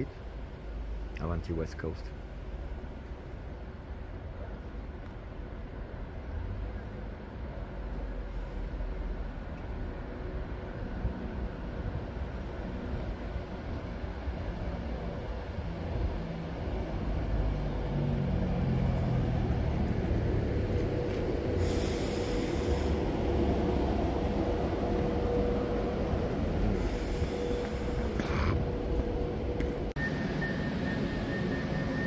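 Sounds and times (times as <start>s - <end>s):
train wheels rumbling on rails: 2.7s - 32.0s
train whine: 5.8s - 32.0s
hiss bursts: 21.6s - 23.0s
high steady tone: 30.0s - 32.0s.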